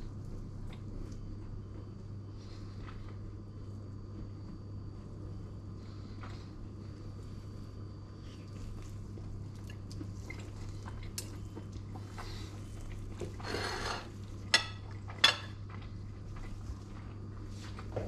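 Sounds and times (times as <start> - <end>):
steady low hum: 0.0 - 18.0
knife scraping a plate: 13.4 - 14.7.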